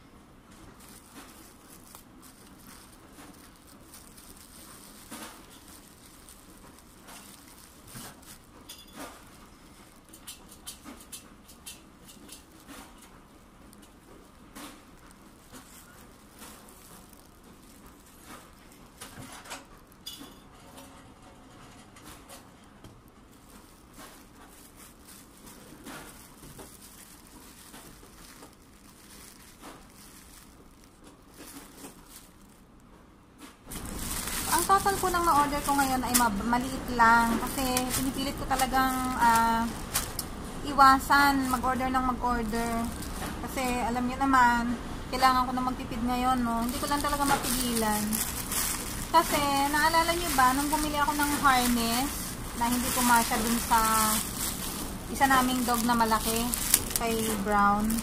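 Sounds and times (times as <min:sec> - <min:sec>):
plastic bag crinkling: 0:00.0 - 0:20.4, 0:23.0 - 0:32.9, 0:33.7 - 0:58.0.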